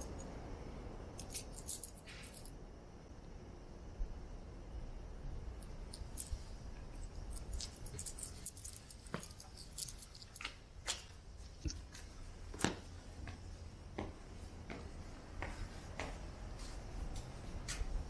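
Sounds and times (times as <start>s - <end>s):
footsteps on stone paving: 10.3s - 17.9s.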